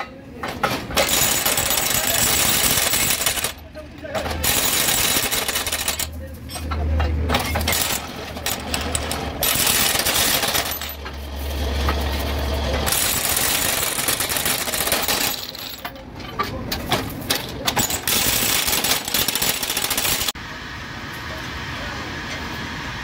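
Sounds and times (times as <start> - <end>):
impact wrench rattling: 12.9 - 15.9, 17.7 - 20.3.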